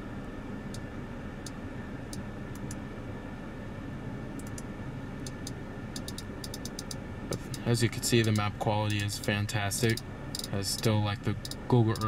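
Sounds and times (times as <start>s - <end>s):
car cabin hum: 0.0s - 12.0s
faint control clicks: 4.4s - 9.1s, 9.8s - 12.0s.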